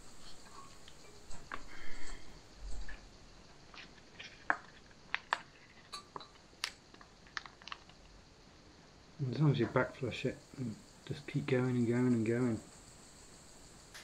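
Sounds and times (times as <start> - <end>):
plastic water pouch crinkling: 6.6 - 8.0.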